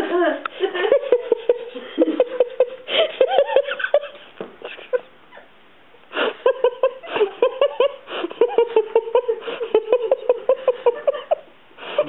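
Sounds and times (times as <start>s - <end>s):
high-pitched giggling laughter: 0.2s - 5.5s.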